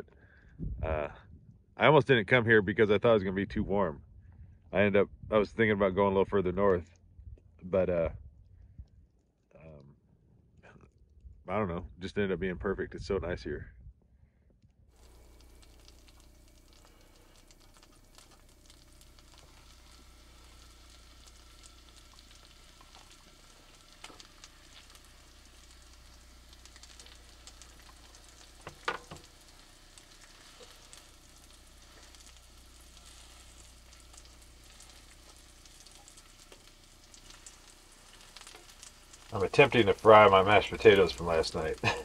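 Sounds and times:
potatoes sizzling in a pan: 15.0 - 42.0.

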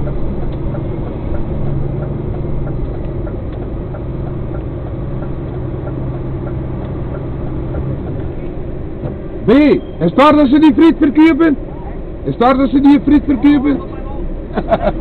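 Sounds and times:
faint ticks: 0.0 - 7.8
diesel truck engine running: 0.0 - 15.0.

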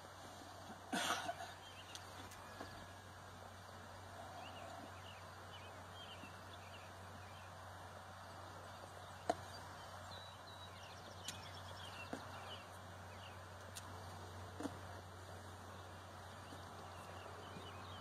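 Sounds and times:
faint bird chirps: 4.1 - 7.6, 8.3 - 13.4.

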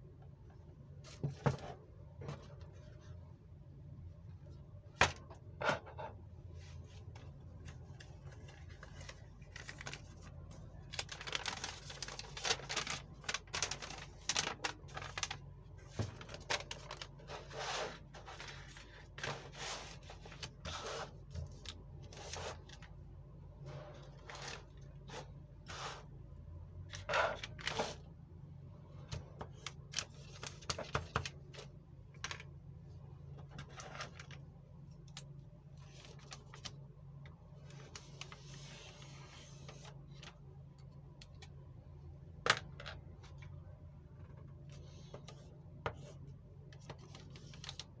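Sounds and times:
paper rustling: 6.8 - 22.9, 46.8 - 48.0.

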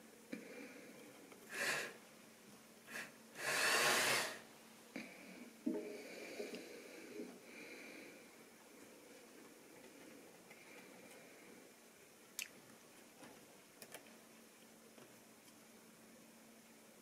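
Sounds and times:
breaths close to microphone: 5.0 - 8.4.

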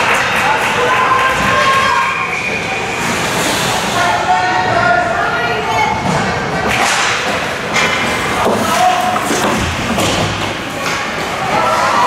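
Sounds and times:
skates scraping ice: 0.2 - 4.4, 6.7 - 12.0
hockey puck and sticks hitting boards: 6.0 - 12.0.

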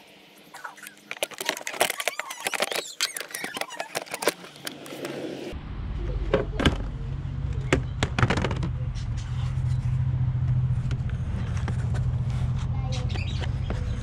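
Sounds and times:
plastic clicks and squeaks: 0.6 - 5.0
low rumble: 5.4 - 13.0.

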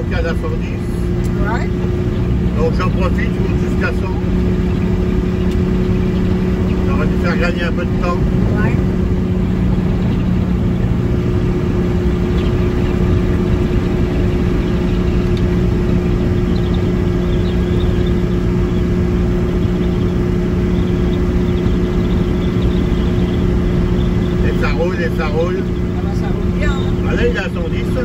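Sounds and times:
car engine and road noise: 0.0 - 28.0.

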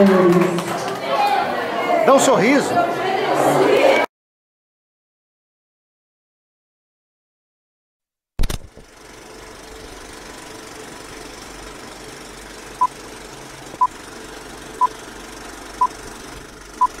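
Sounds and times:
film projector whirring: 8.4 - 17.0.

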